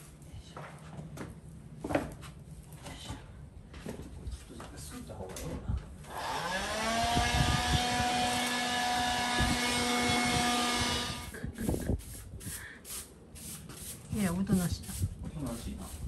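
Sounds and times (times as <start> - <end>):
handheld vacuum cleaner whine: 6.1 - 11.4.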